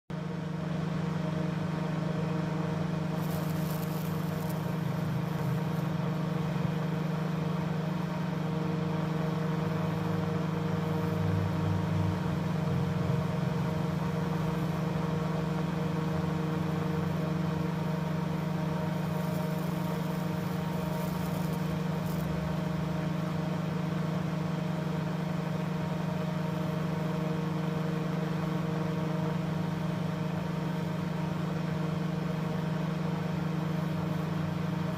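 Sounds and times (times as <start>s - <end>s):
loud electrical hum: 0.1s - 34.9s
fizzing electrical arc crackle: 2.8s - 8.2s, 8.9s - 24.4s.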